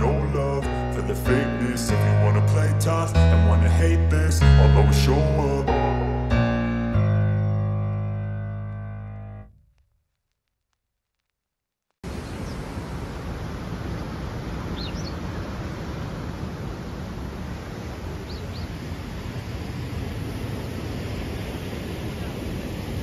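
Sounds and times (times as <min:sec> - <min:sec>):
steady rushing outdoor noise: 0:12.0 - 0:23.0
bird chirps: 0:14.8 - 0:15.2, 0:18.3 - 0:18.8.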